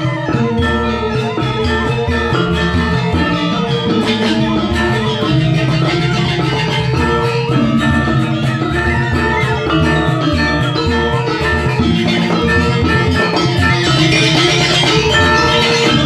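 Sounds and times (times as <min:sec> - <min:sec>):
bronze metallophones ringing: 0:00.0 - 0:16.0.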